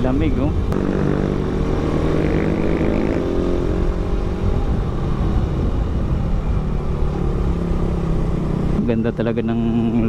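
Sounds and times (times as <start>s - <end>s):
road noise: 0.0s - 10.0s
wind rumble on microphone: 0.0s - 10.0s
motorcycle engine running: 0.7s - 10.0s.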